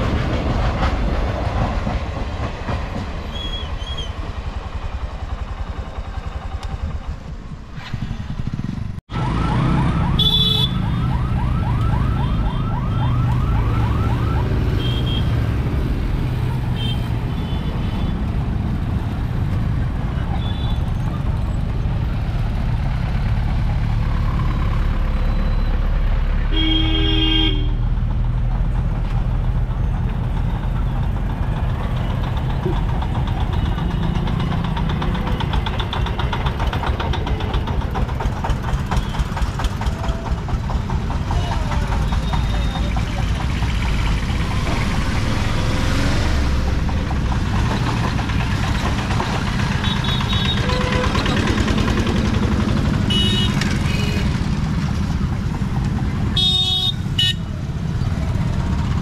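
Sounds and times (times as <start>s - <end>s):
traffic engine rumble: 0.0s - 59.0s
vehicle horn honking: 10.2s - 10.8s, 14.8s - 15.3s, 26.5s - 27.8s, 49.8s - 51.2s, 53.1s - 54.3s, 56.4s - 57.5s
engine puttering: 27.9s - 59.0s.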